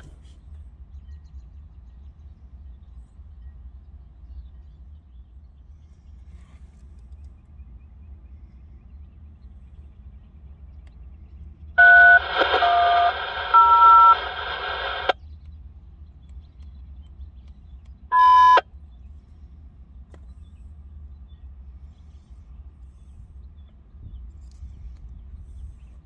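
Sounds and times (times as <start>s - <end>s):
short sharp beep: 11.8s - 14.4s, 18.1s - 18.6s
radio hiss: 11.8s - 15.2s
radio squelch click: 11.8s - 15.2s
two-tone touch-tone digits: 11.8s - 15.2s, 18.1s - 18.6s.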